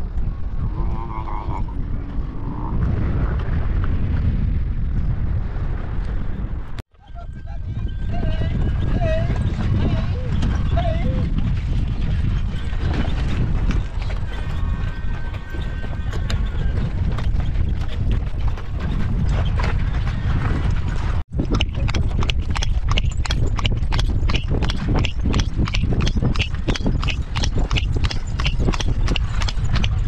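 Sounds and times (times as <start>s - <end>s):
horse hooves clip-clopping: 7.3s - 30.0s.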